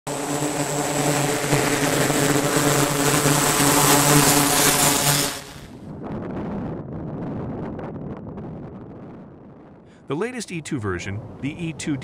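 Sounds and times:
high engine whine: 0.1 - 5.8
propeller engine drone: 0.1 - 8.6, 9.2 - 12.0.

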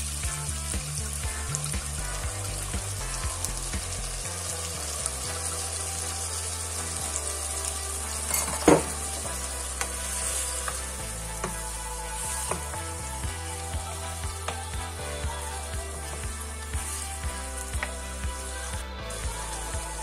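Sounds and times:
food sizzling in a frying pan: 0.0 - 20.0.

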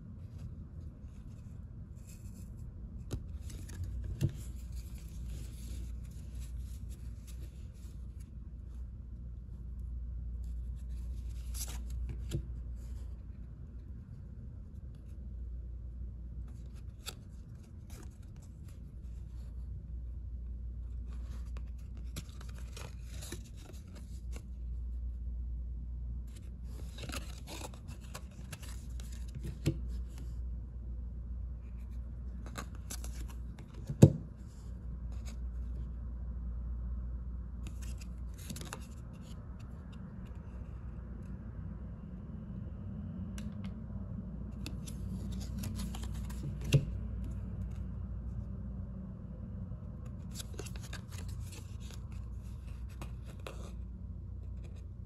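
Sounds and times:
steady low hum: 0.0 - 55.0
cards rustling: 1.1 - 8.3, 10.4 - 13.2, 21.0 - 24.6, 26.3 - 30.4, 31.7 - 34.1, 37.6 - 40.0, 44.5 - 47.8, 50.1 - 53.8.

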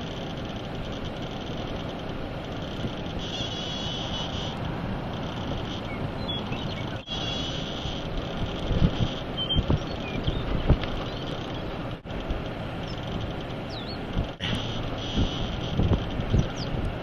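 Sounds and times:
faint high whine: 0.0 - 17.0
strong wind rushing: 4.5 - 17.0.

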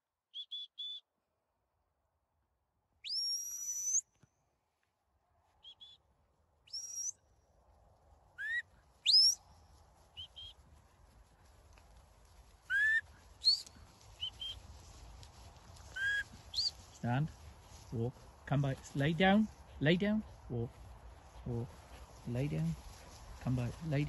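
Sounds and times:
shepherd's high whistles: 0.4 - 1.0, 3.0 - 4.1, 6.7 - 7.2, 8.4 - 9.4, 12.7 - 14.6, 15.9 - 16.8.

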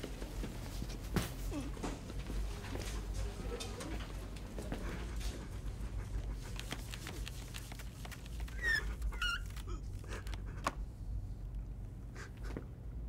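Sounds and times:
steady low hum: 0.0 - 13.0
marker squeaking on a whiteboard: 6.7 - 10.3.

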